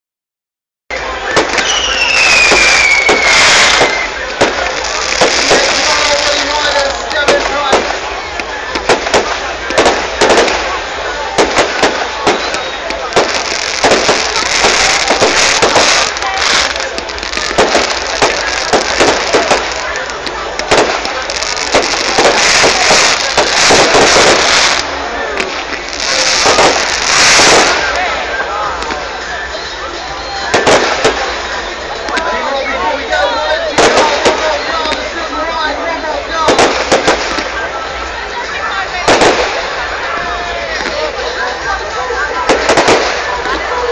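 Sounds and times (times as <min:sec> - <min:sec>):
fireworks bangs and crackling: 0:00.9 - 0:43.9
firework whistle falling in pitch: 0:01.5 - 0:04.2.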